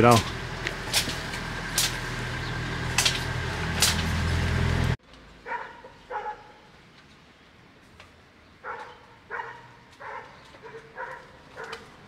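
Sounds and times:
dog barking: 5.4 - 6.6, 8.6 - 11.9.

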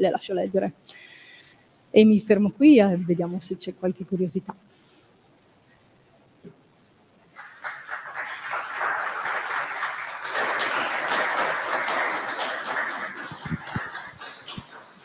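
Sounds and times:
audience applauding: 7.4 - 15.0.

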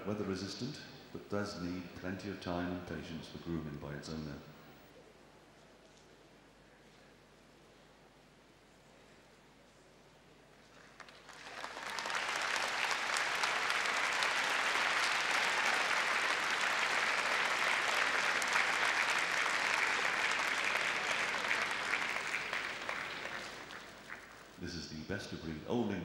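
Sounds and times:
audience applauding: 10.7 - 24.6.

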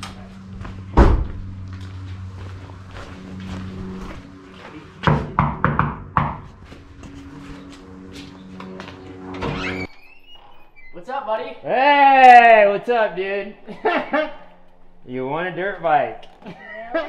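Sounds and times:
low steady hum: 0.0 - 10.8
loud thump: 0.9 - 1.5
knocking on glass door: 5.1 - 6.4.

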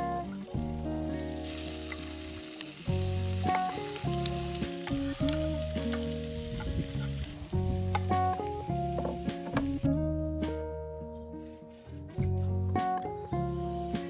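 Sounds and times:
onion sizzling in hot oil: 0.0 - 9.9
soft background music: 0.0 - 14.0.

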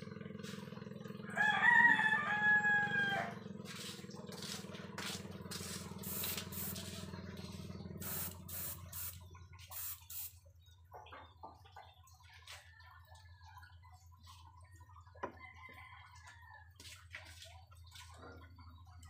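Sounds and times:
airbrush spraying hiss: 6.0 - 6.9, 8.0 - 10.3.

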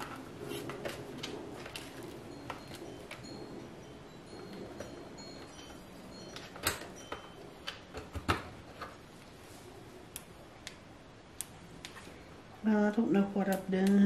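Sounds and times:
hard objects clicking and knocking: 6.4 - 9.0.

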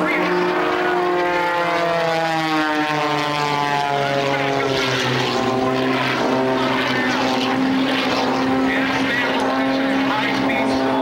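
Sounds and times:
aerobatic plane engine and propeller: 0.0 - 11.0.

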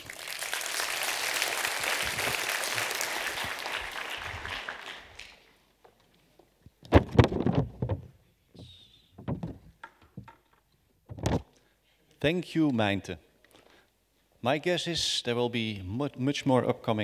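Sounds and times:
audience applauding: 0.0 - 5.5
loud thumps: 6.9 - 10.3, 11.1 - 11.5.

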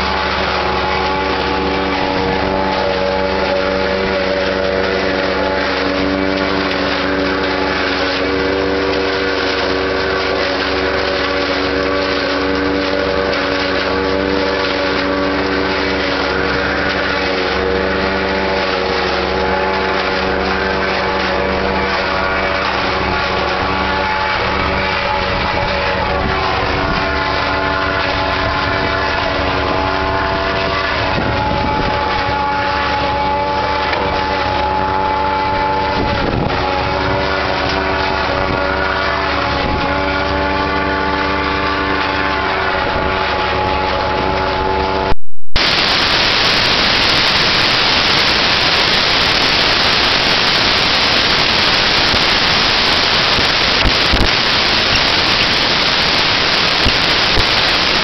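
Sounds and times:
forage harvester chopping maize: 0.0 - 42.4
steady machine whine: 0.0 - 58.0
tractor engine: 0.0 - 58.0
loud even hiss: 45.6 - 58.0.

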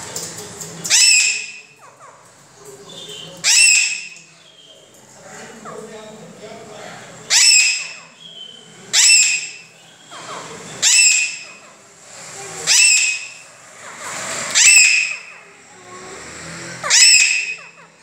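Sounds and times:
parakeet shrill calls: 0.9 - 1.9, 2.9 - 4.8, 7.3 - 10.2, 10.8 - 11.7, 12.6 - 15.6, 16.8 - 17.9.

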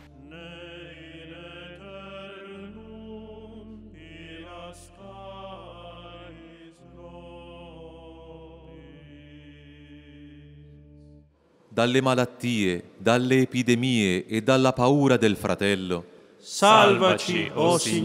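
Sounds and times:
voices chanting held chords: 16.5 - 18.0.

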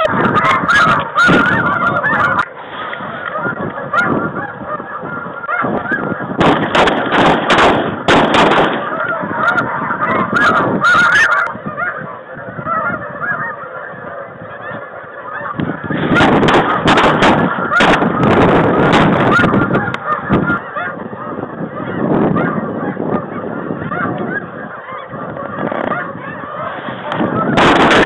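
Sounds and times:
bursts of noise: 0.0 - 28.0
geese honking: 0.0 - 28.0.

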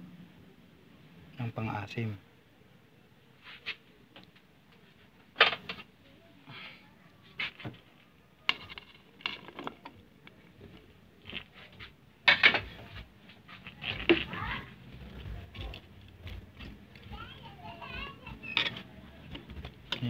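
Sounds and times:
vegetables clattering into metal pot: 8.5 - 10.1.

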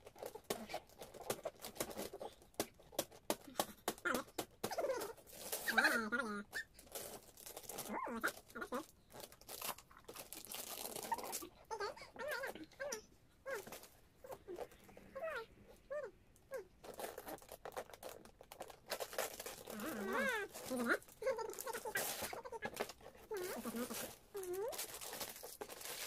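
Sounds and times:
paper crinkling and tearing: 0.0 - 12.7, 16.5 - 26.0
baby babbling: 19.8 - 24.8.

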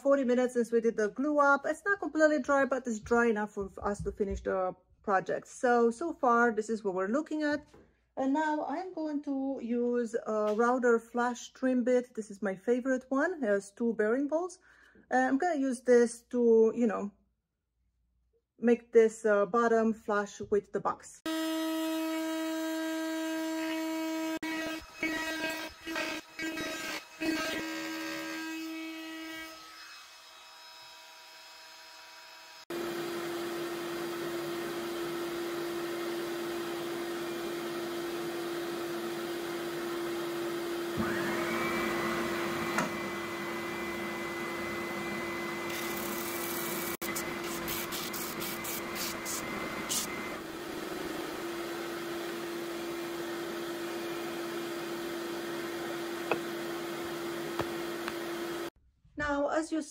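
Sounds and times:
trim router whine: 21.3 - 58.7
wood sanding whine: 32.0 - 58.7
belt sander humming: 32.7 - 58.7.

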